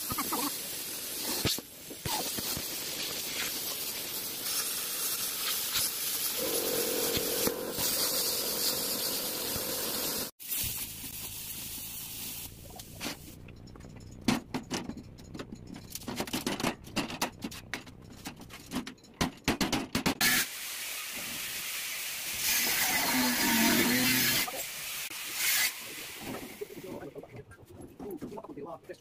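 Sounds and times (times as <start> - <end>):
angle grinder hissing: 0.0 - 10.3, 20.2 - 26.7.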